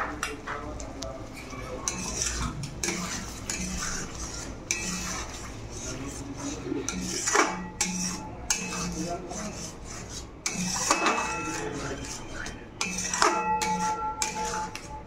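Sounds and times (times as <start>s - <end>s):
metal spatula scraping a pan: 1.8s - 15.0s
pan ringing: 10.5s - 15.0s.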